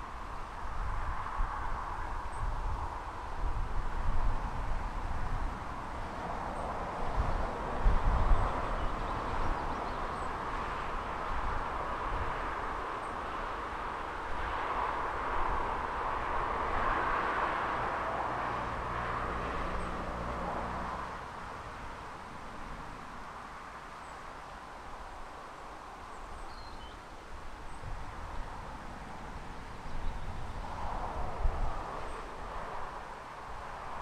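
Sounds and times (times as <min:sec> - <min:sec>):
low engine hum: 0:01.7 - 0:26.9
vehicle passing rushing noise: 0:04.7 - 0:24.1, 0:27.7 - 0:34.0.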